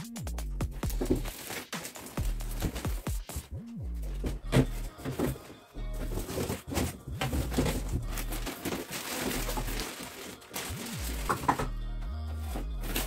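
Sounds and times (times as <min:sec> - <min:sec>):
music bass line: 0:00.0 - 0:01.3, 0:02.2 - 0:05.0
packaging rustling and crinkling: 0:00.8 - 0:03.3, 0:04.5 - 0:11.7, 0:12.5 - 0:13.0.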